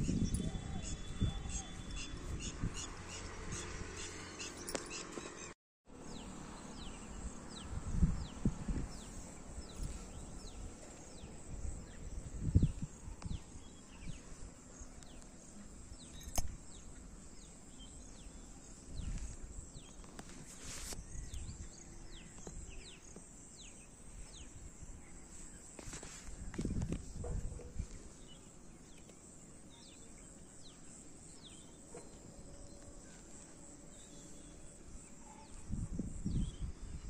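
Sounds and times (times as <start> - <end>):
birds chirping: 0.0 - 20.2
sharp click: 16.2 - 16.6.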